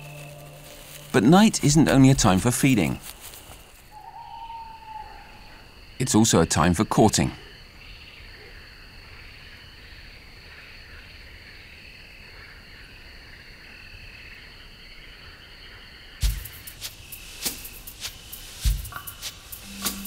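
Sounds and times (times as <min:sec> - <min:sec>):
music: 0:00.0 - 0:01.9, 0:16.2 - 0:16.8, 0:17.4 - 0:20.0
crickets chirping: 0:00.0 - 0:20.0.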